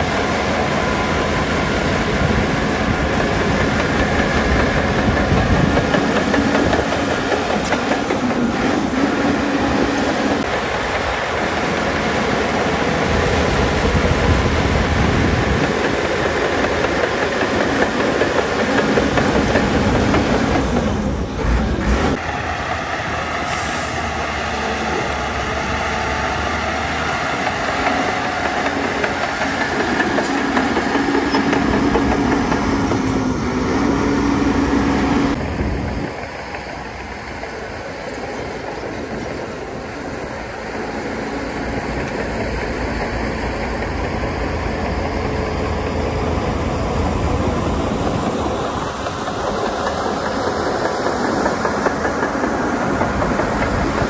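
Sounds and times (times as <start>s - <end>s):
steel tracks clanking: 0.0s - 54.0s.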